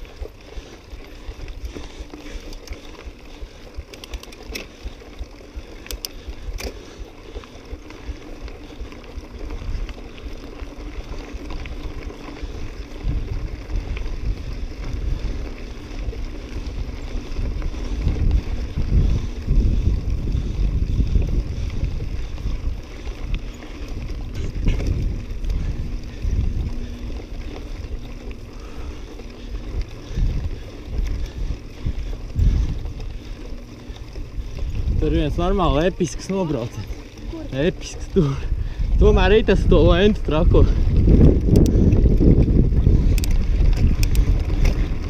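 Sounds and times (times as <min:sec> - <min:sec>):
bike tyres crunching on gravel: 0:00.0 - 0:45.0.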